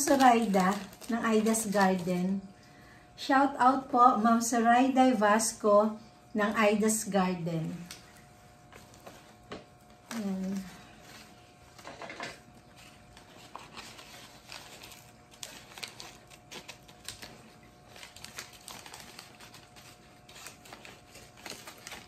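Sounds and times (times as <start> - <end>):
paper crinkling: 0.0 - 2.2, 7.6 - 22.0.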